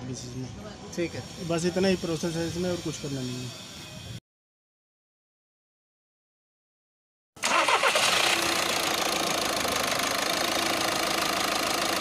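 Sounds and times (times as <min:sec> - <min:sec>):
diesel engine idling: 0:07.4 - 0:12.0.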